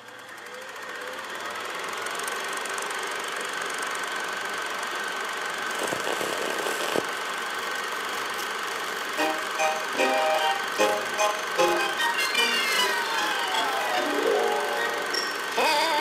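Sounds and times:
film projector whirring: 0.0s - 16.0s
plucked tune: 9.2s - 16.0s.

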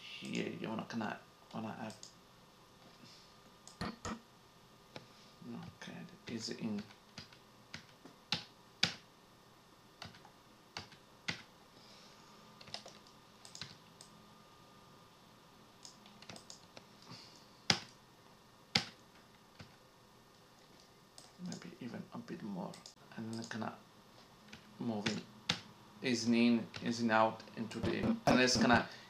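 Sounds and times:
computer mouse clicks: 1.9s - 2.2s, 12.6s - 14.2s, 15.8s - 18.0s, 22.7s - 23.6s.

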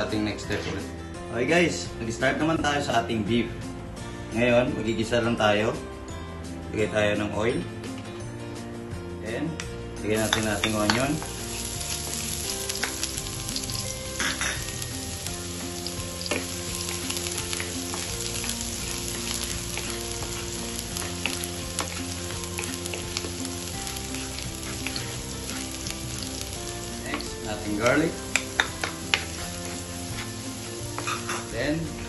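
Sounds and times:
onion sizzling in hot oil: 10.1s - 32.0s
spatula scraping and tapping pan: 27.1s - 31.5s.

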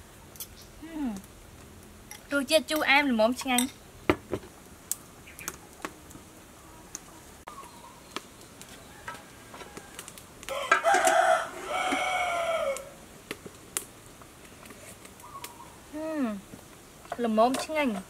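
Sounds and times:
rooster crowing: 8.7s - 13.0s.

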